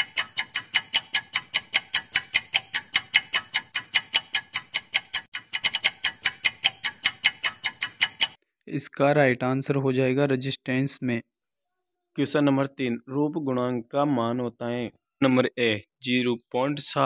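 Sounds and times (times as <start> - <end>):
timer ticking: 0.0 - 8.4.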